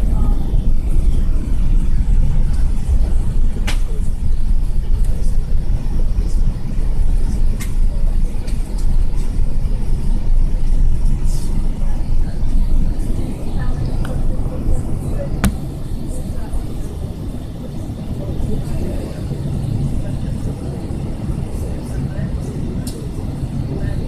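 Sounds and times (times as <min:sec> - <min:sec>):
aircraft cabin low rumble: 0:00.0 - 0:24.0.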